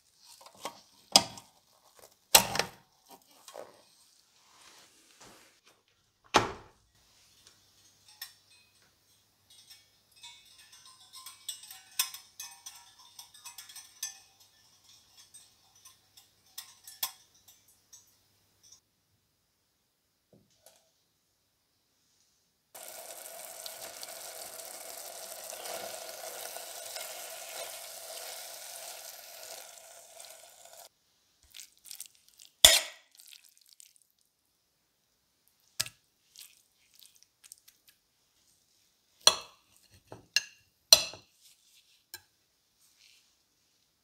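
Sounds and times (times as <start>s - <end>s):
knife and fork clinking on plate: 7.8s - 18.8s
pot clinking against plate: 7.9s - 18.8s
food sizzling in a pot: 22.8s - 30.9s.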